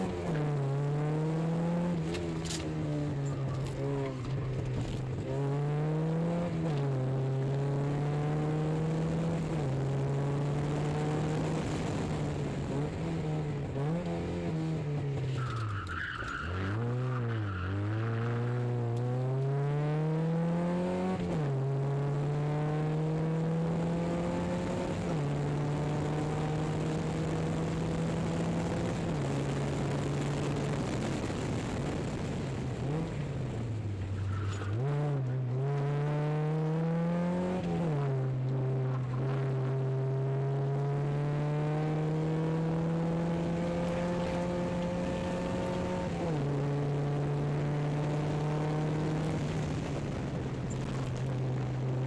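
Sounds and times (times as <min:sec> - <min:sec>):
car engine accelerating: 0:00.0 - 0:52.0
tyre squeal: 0:15.3 - 0:18.6, 0:34.2 - 0:34.8.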